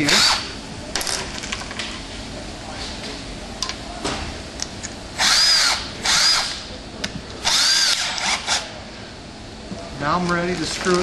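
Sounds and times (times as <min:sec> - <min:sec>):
cordless drill motor whining: 0:05.2 - 0:06.6, 0:07.4 - 0:08.6.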